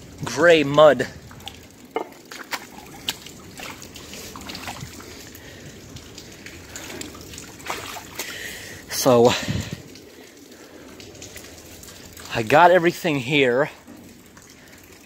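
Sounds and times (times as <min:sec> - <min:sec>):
faint clicks and drips: 0:00.0 - 0:15.0
river water trickling: 0:00.0 - 0:15.0
small water splash: 0:01.3 - 0:12.4.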